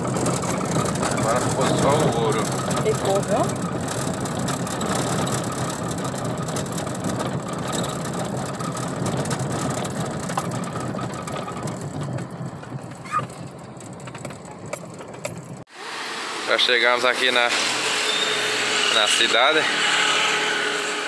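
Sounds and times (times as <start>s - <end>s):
small rattles: 0.0s - 15.7s
tyres rumbling on paving stones: 0.0s - 15.7s.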